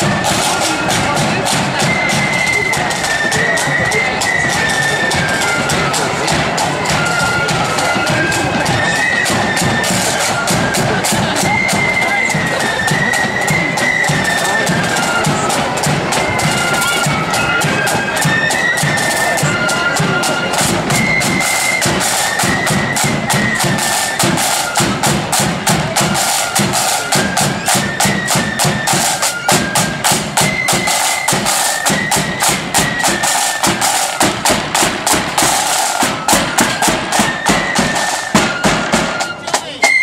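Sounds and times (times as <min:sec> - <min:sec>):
flutes playing melody: 0:00.0 - 0:40.0
rapid snare drumming: 0:00.0 - 0:40.0.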